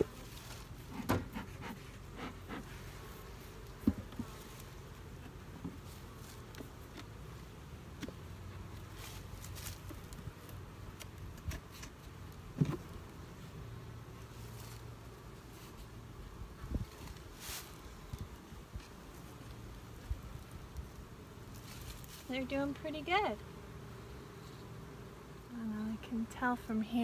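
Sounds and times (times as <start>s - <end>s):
honey bees buzzing: 0.0s - 27.0s
knocks of wooden hive parts: 0.8s - 2.7s, 3.7s - 4.4s.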